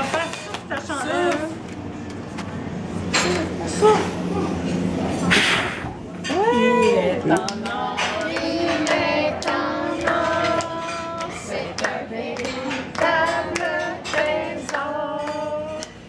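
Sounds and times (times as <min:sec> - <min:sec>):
group singing a celebratory song: 0:07.2 - 0:16.0
hands clapping in rhythm: 0:07.3 - 0:16.0.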